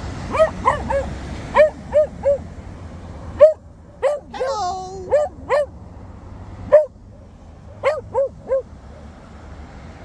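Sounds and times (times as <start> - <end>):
dog yipping: 0.3 - 2.5, 3.4 - 5.8, 6.7 - 7.0, 7.7 - 9.0.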